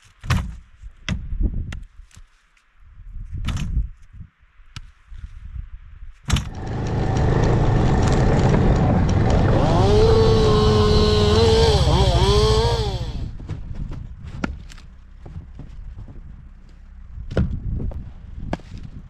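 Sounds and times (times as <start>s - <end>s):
chainsaw cutting wood: 6.4s - 13.4s
chainsaw running: 6.5s - 13.3s.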